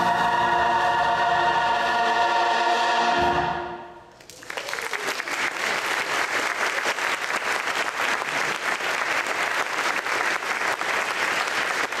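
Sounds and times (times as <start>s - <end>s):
audience applauding: 4.2s - 12.0s.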